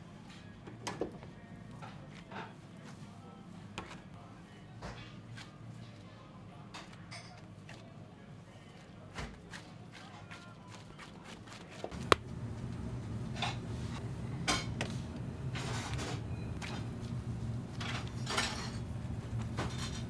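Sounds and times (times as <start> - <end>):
steady low hum: 12.0 - 20.0.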